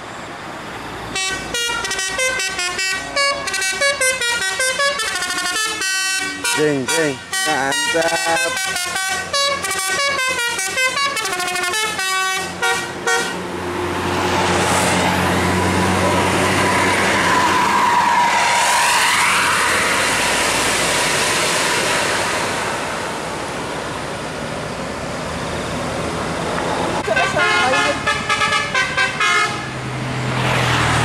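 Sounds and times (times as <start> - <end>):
coach engine passing by: 0.4 - 31.0
bus multi-tone air horn: 1.1 - 13.4, 27.0 - 29.8.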